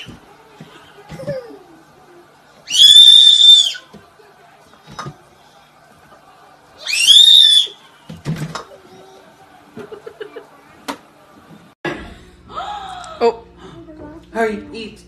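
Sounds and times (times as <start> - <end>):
baby shrieking: 2.7 - 3.8.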